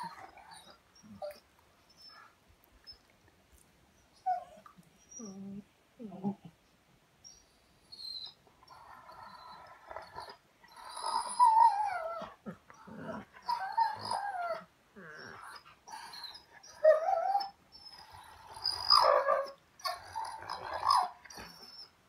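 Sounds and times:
dog vocal calls: 13.0s - 21.8s.

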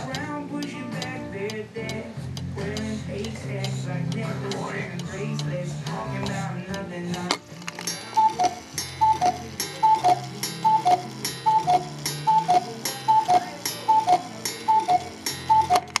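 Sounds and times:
cuckoo clock click: 7.8s - 16.0s
cuckoo clock calling: 7.9s - 16.0s.

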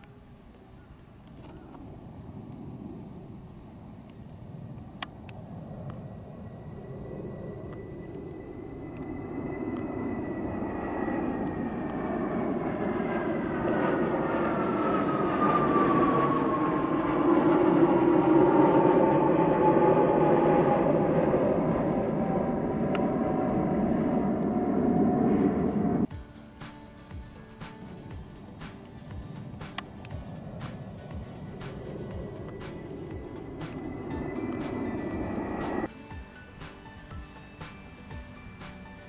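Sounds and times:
jet aircraft roar: 0.0s - 26.1s, 27.0s - 36.1s
high jet whine falling in pitch: 0.0s - 39.0s.

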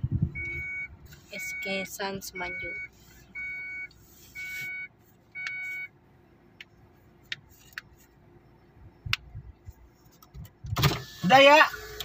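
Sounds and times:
vehicle warning beeper two-tone: 0.3s - 6.0s.

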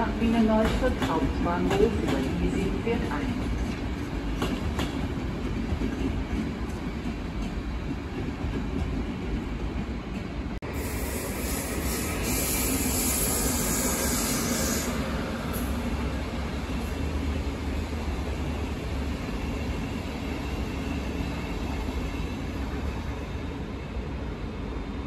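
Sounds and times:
train wheels rumbling on rail: 0.0s - 25.0s
high hiss: 10.7s - 15.0s.

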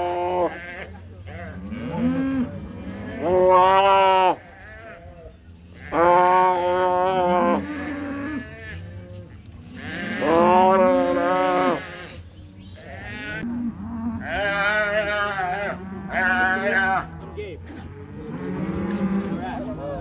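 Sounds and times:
cattle bawling: 5.8s - 12.2s, 12.9s - 19.6s.

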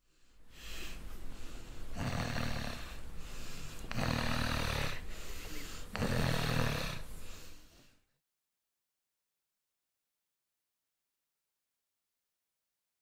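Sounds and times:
deep rumbling snoring: 1.9s - 5.3s, 5.9s - 7.1s.

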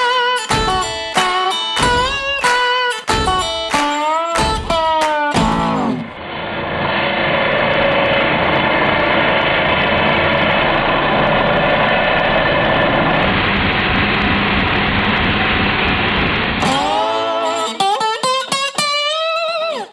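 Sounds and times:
angle grinder cutting metal: 16.6s - 18.4s.

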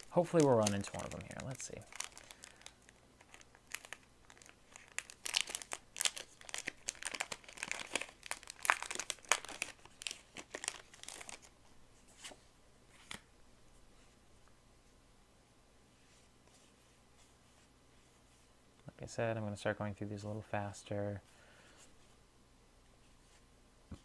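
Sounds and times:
wrapper tearing and crinkling: 0.0s - 11.5s.

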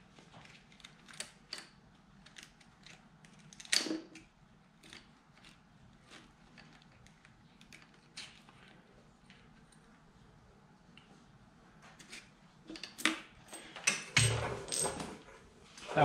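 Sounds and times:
hands clicking and tapping parts: 0.1s - 9.9s.

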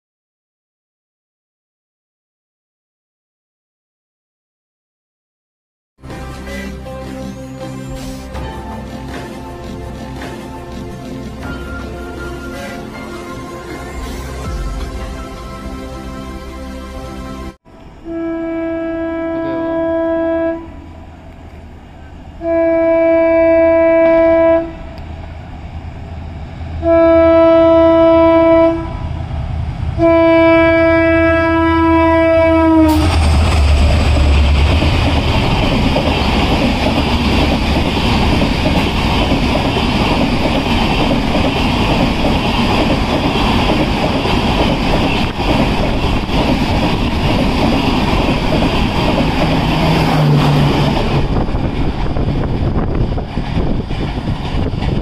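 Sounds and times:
train coaches rolling roar: 6.0s - 55.0s
locomotive horn blasts: 12.3s - 13.4s, 17.4s - 21.0s, 22.4s - 25.0s, 26.8s - 29.2s, 30.0s - 33.4s.

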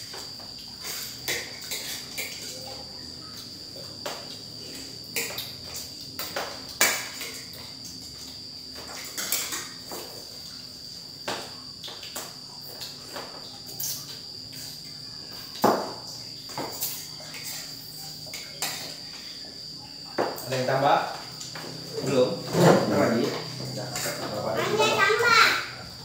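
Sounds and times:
cutlery clinking on plates: 0.8s - 2.7s, 5.1s - 7.6s, 8.8s - 10.3s, 15.6s - 19.1s.

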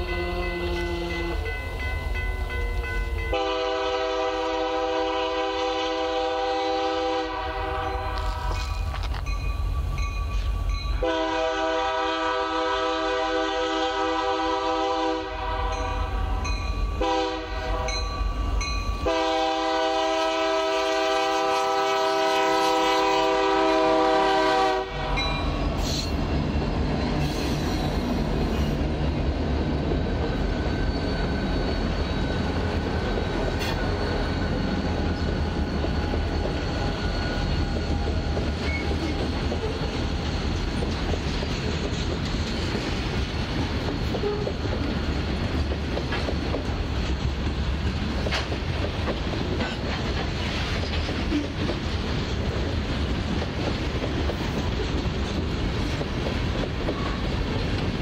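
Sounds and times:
locomotive air horn blasts: 0.0s - 1.5s, 3.3s - 8.7s, 11.0s - 18.0s, 19.0s - 25.3s
train engines and wheels rumbling: 0.0s - 58.0s.

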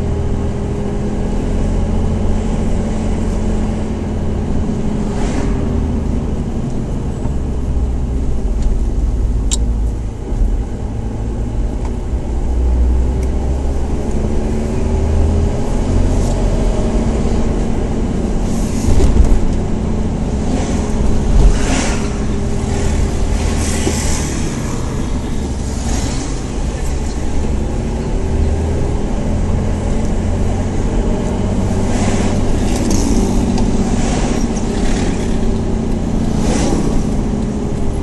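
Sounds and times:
car engine rumble: 0.0s - 38.0s
road noise: 0.0s - 38.0s.

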